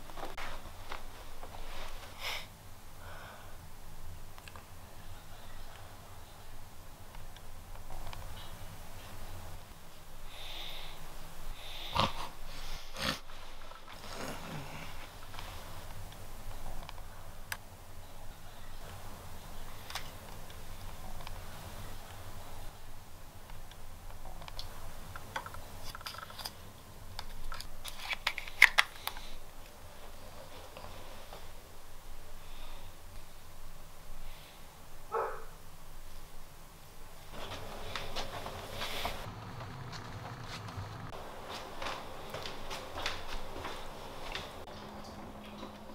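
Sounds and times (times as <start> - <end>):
person snoring and snorting: 11.6 - 13.3, 14.0 - 15.1
low groan: 39.2 - 41.2.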